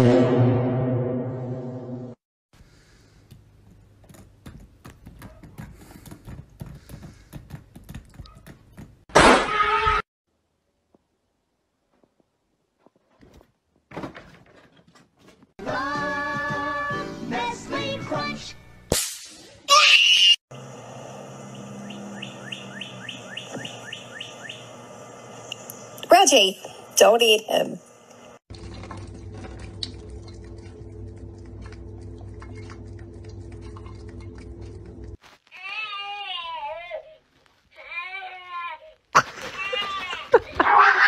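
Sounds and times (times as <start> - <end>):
loud pitched cry: 19.7 - 20.4
low steady hum: 21.0 - 35.2.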